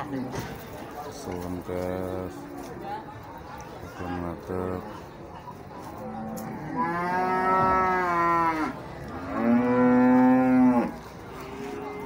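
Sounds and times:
cattle mooing: 0:06.1 - 0:12.0.

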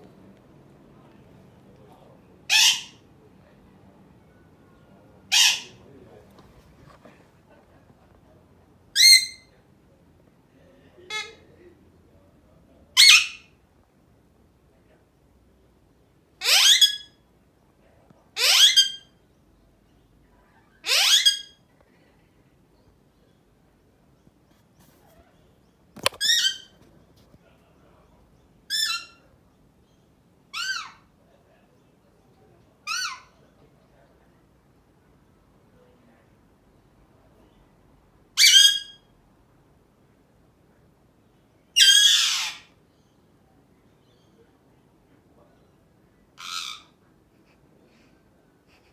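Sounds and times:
parakeet squawks: 0:02.5 - 0:03.0, 0:05.3 - 0:05.8, 0:09.0 - 0:09.5, 0:13.0 - 0:13.5, 0:16.4 - 0:17.2, 0:18.4 - 0:19.1, 0:20.8 - 0:21.6, 0:26.0 - 0:26.7, 0:30.5 - 0:31.0, 0:32.8 - 0:33.4, 0:38.4 - 0:39.1, 0:41.8 - 0:42.7, 0:46.4 - 0:47.0
parrot squawks rising in pitch: 0:02.5 - 0:03.0, 0:05.3 - 0:05.8, 0:38.4 - 0:39.0, 0:41.8 - 0:42.7, 0:46.4 - 0:47.0.

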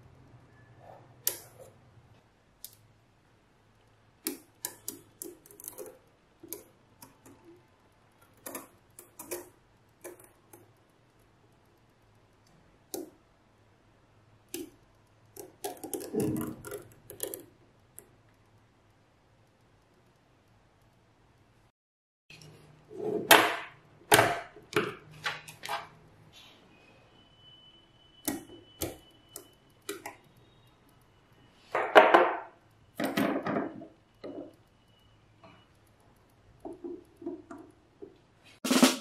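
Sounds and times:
magnet balls clicking: 0:04.2 - 0:07.4.

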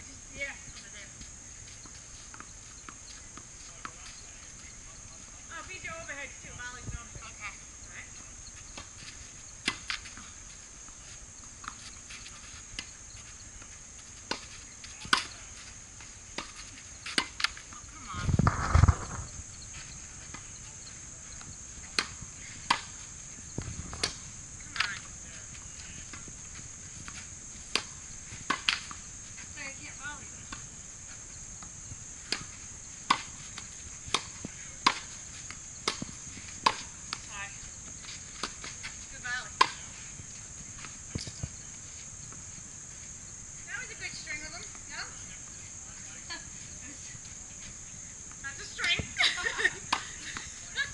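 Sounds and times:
tennis balls struck by racket: 0:21.9 - 0:23.0, 0:27.0 - 0:29.0, 0:32.2 - 0:37.2
tennis balls bouncing on court: 0:31.6 - 0:38.8.

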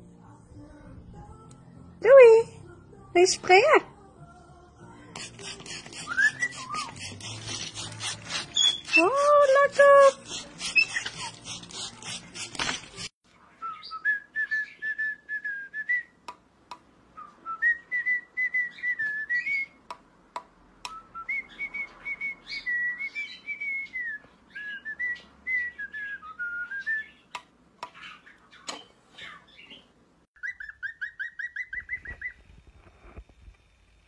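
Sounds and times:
cockatiel whistling a tune: 0:06.0 - 0:07.0, 0:08.5 - 0:09.2, 0:13.6 - 0:16.2, 0:17.2 - 0:19.8, 0:20.9 - 0:27.3, 0:30.4 - 0:32.4.

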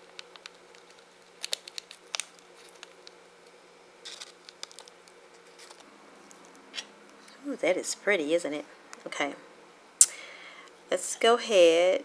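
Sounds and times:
faint steady hum: 0:00.0 - 0:12.0
small plastic items clicking: 0:00.1 - 0:03.2.

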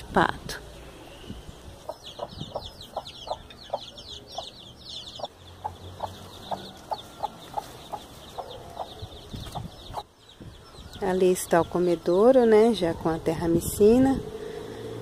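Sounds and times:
chicks peeping: 0:01.3 - 0:13.1
hen clucking: 0:01.8 - 0:10.1.

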